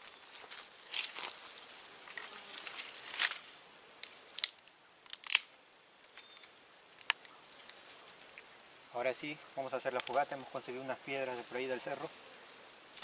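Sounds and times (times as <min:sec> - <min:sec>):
dry sticks crackling and snapping: 0:00.0 - 0:01.6, 0:02.2 - 0:08.6, 0:09.3 - 0:10.4
rustling: 0:00.0 - 0:08.6, 0:09.2 - 0:13.0.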